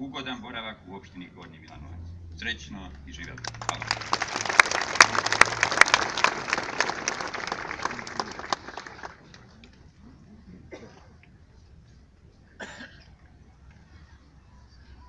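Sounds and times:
audience applauding: 3.2s - 9.6s.

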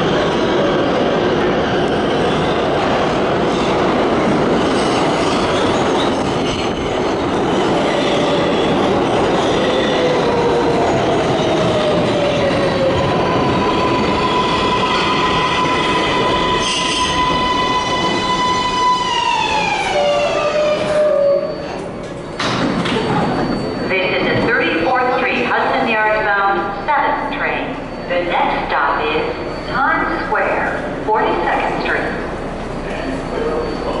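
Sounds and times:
subway train wheels rumbling: 0.0s - 34.0s
high-pitched whine: 21.5s - 34.0s.

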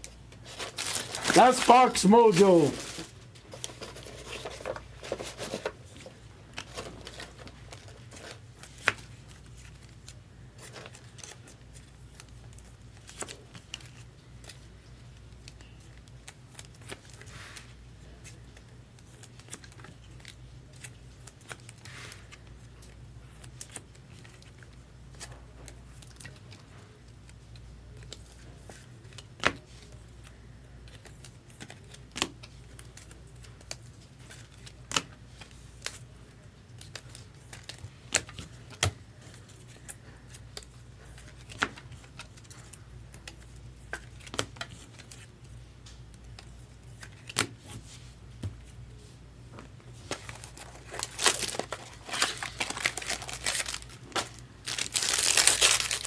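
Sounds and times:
packaging rustling and tearing: 0.3s - 11.6s, 50.0s - 56.0s.

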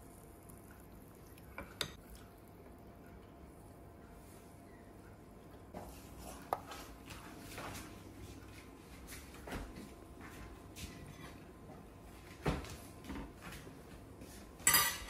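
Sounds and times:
metal spoon and kitchenware clatter: 14.6s - 15.0s.

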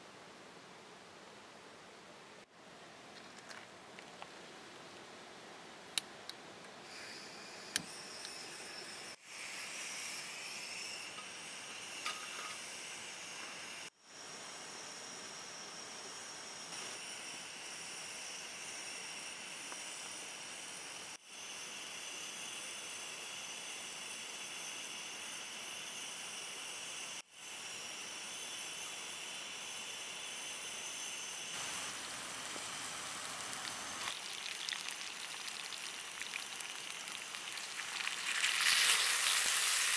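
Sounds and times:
gas flame hissing: 31.5s - 34.1s
potato slices sizzling in a pan: 31.6s - 39.9s.

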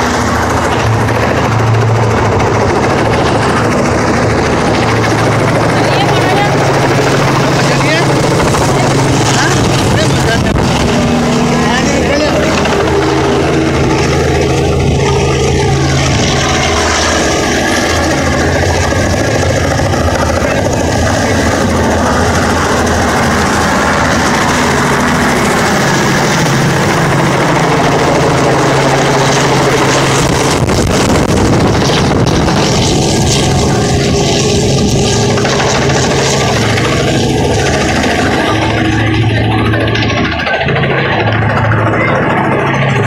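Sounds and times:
helicopter rotor and engine: 0.0s - 43.0s
low hum: 0.0s - 43.0s.

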